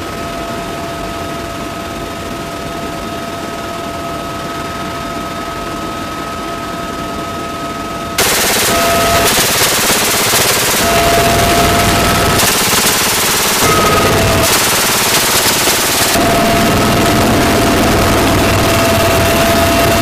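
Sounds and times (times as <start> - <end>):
helicopter cabin noise: 8.2 - 20.0
minigun firing: 8.2 - 20.0.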